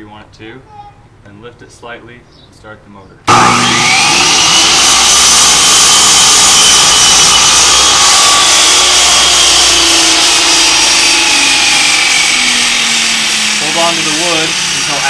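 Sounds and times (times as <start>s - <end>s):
miter saw cutting wood: 3.3s - 15.0s.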